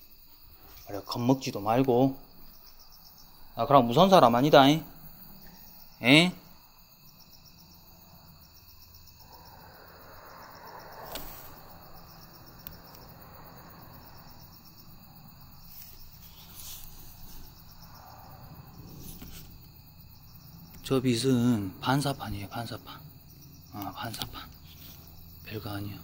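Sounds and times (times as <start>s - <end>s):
crickets chirring: 0.0s - 26.0s
soft rustling: 15.6s - 17.8s, 18.8s - 19.8s.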